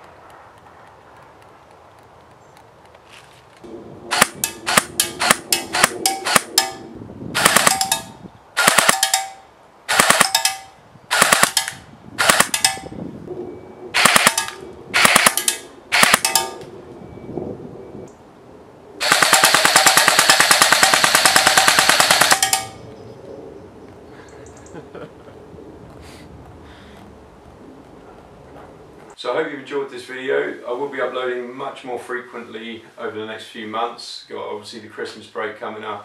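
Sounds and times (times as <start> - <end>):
airsoft rifle firing: 4.1 - 12.9, 14.0 - 16.6, 19.0 - 22.8.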